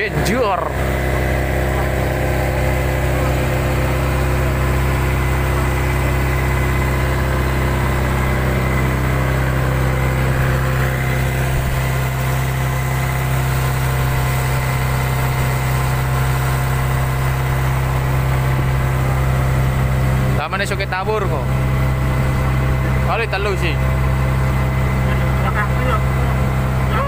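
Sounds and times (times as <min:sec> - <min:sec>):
boat engine humming: 0:00.0 - 0:27.0.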